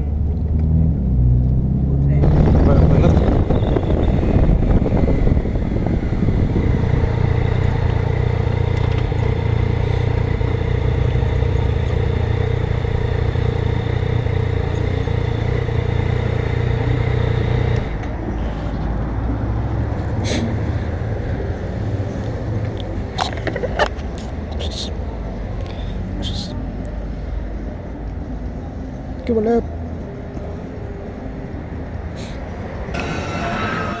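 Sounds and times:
low rumble: 0:00.0 - 0:10.0
motorcycle engine running: 0:02.2 - 0:18.0.

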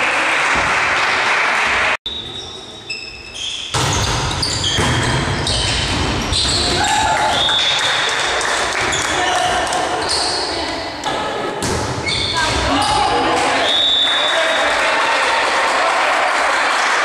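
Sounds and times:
volleyball hits: 0:11.0 - 0:13.7.

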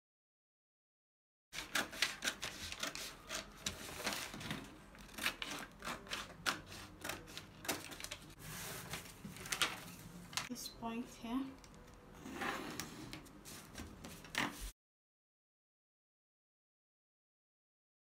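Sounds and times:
scissors snipping paper: 0:01.6 - 0:08.4
paper crackling and rustling: 0:01.6 - 0:10.6.

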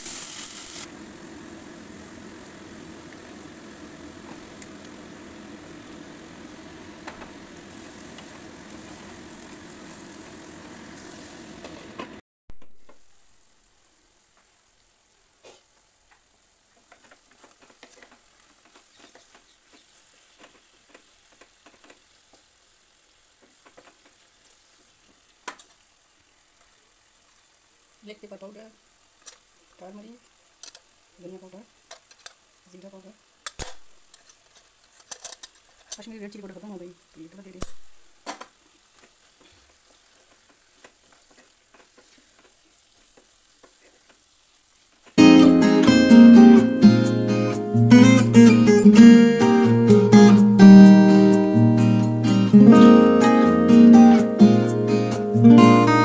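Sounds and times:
chicken sizzling in oil: 0:00.0 - 0:34.9, 0:35.5 - 0:56.0.

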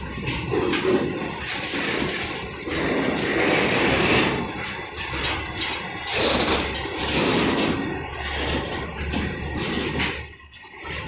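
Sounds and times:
train wheels rumbling on rails: 0:00.0 - 0:11.0
high wheel squeal: 0:07.0 - 0:11.0.

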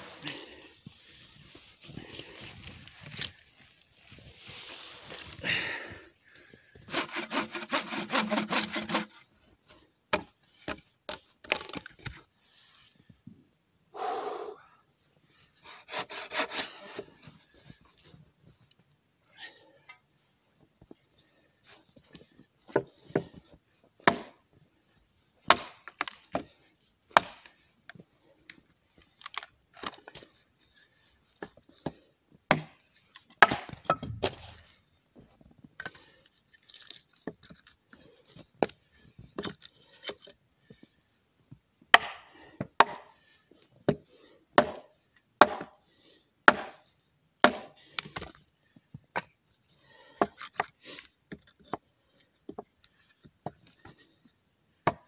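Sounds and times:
axe chopping wood: 0:24.0 - 0:24.4, 0:25.5 - 0:26.4, 0:27.1 - 0:27.4, 0:32.5 - 0:32.8, 0:33.4 - 0:34.5, 0:41.9 - 0:43.1, 0:44.6 - 0:45.8, 0:46.5 - 0:46.8, 0:47.4 - 0:48.3.

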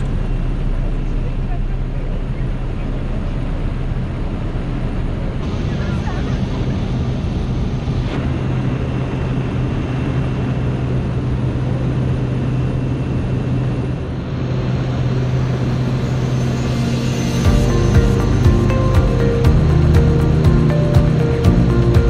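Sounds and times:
small plane engine drone: 0:00.0 - 0:22.0.

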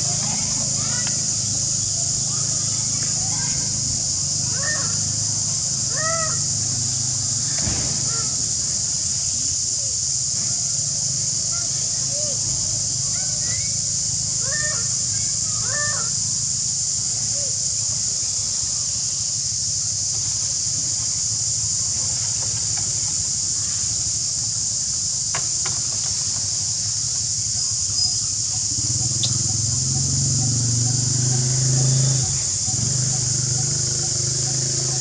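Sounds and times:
short chirping calls: 0:29.0 - 0:29.5.

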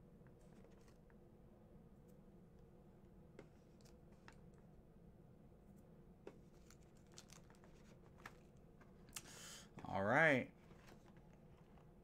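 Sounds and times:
plastic packaging clicks and rustles: 0:06.6 - 0:08.5.

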